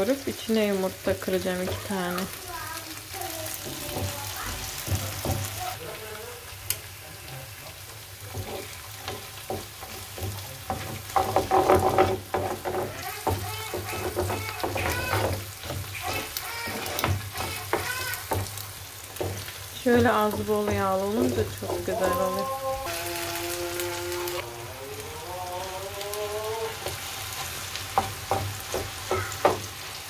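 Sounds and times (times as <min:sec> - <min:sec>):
food sizzling in oil: 0:00.0 - 0:30.0
wooden spoon knocking pan: 0:03.6 - 0:05.8, 0:08.3 - 0:22.6, 0:27.9 - 0:29.8.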